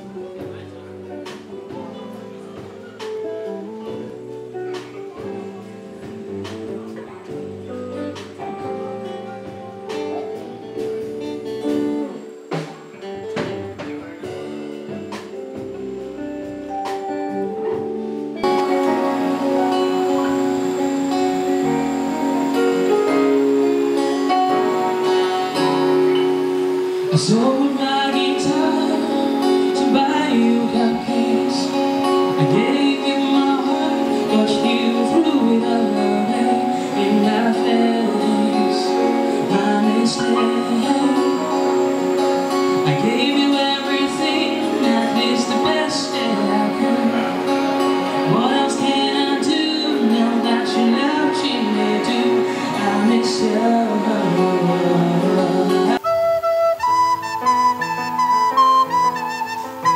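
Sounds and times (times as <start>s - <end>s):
band playing: 0.0s - 59.9s
guitar strummed and plucked: 0.0s - 59.9s
drum kit hits: 4.8s - 27.4s
man singing into a microphone: 18.4s - 56.0s.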